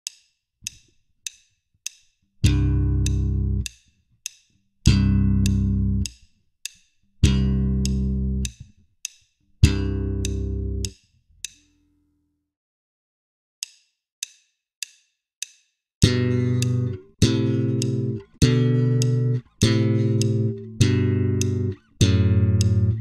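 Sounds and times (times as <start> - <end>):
metronome clicking: 0.0 - 11.8, 13.6 - 23.0
slap bass chords: 2.4 - 3.7, 4.9 - 6.1, 7.2 - 8.7, 9.6 - 10.9, 16.0 - 23.0.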